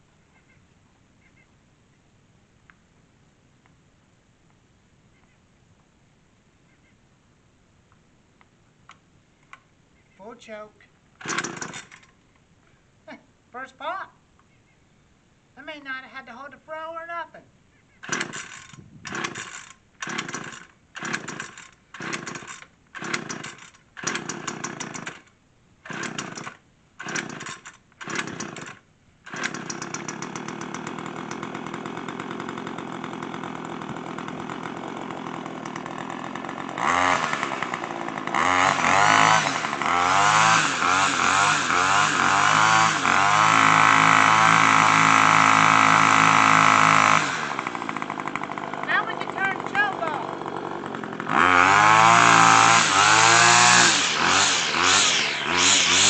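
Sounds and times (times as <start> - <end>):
string trimmer engine revving: 11.2 - 12.1, 18.0 - 56.0
starter cord pulls: 11.2 - 12.2, 18.0 - 31.6, 35.5 - 40.0.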